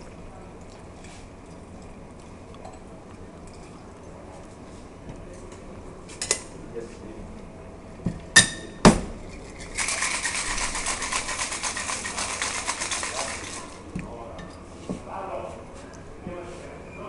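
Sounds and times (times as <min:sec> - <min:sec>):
ice rattling in metal shaker: 0:09.3 - 0:13.8.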